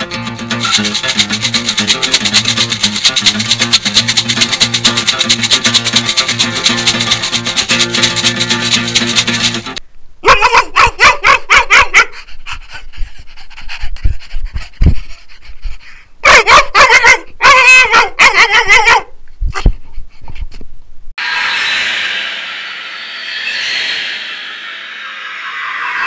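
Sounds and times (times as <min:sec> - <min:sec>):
dog yipping and whimpering: 0:10.2 - 0:12.1, 0:16.2 - 0:19.1
dog panting: 0:12.1 - 0:16.1.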